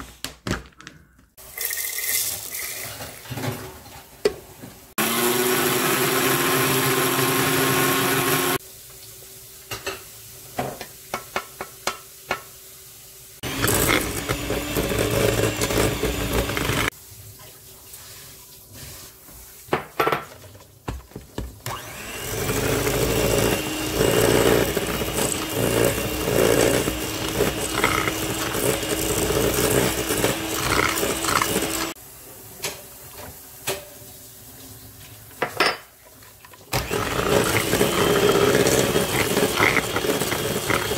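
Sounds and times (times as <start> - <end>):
blender grinding oats: 5.0 - 8.6, 13.4 - 16.9, 21.6 - 32.0, 36.7 - 40.9
electric hand mixer whining: 5.0 - 8.6, 13.4 - 16.9, 21.6 - 32.0, 36.7 - 40.9.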